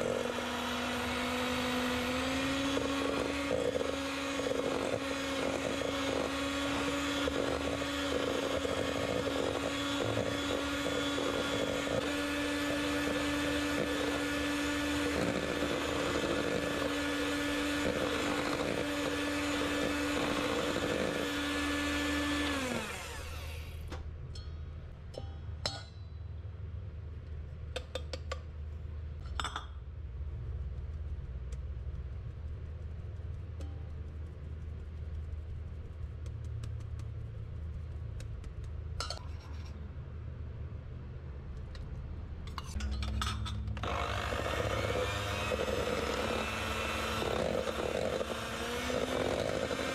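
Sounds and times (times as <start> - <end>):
electric hand mixer whining: 0.0 - 23.9, 43.8 - 49.9.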